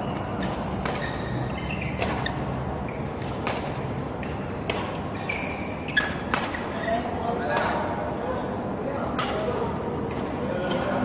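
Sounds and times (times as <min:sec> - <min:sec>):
shoes squeaking on court: 0:00.0 - 0:07.1
racket hitting shuttlecock: 0:00.1 - 0:02.5, 0:03.1 - 0:05.3, 0:05.9 - 0:06.7.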